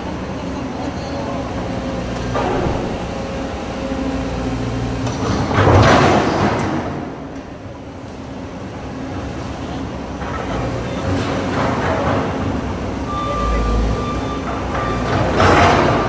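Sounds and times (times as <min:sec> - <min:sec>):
excavator diesel engine: 0:00.0 - 0:16.0
loud clatter: 0:05.0 - 0:07.3, 0:14.7 - 0:16.0.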